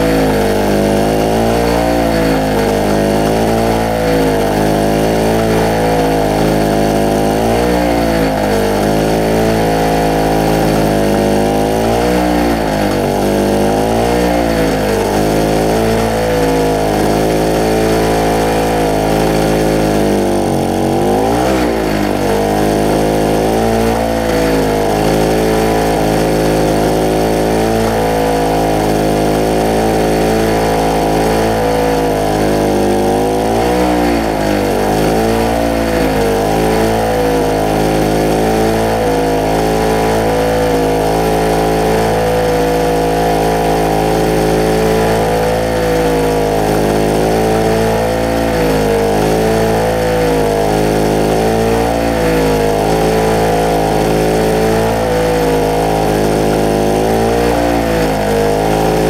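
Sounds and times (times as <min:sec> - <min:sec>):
generator engine running unevenly: 0:00.0 - 0:59.0.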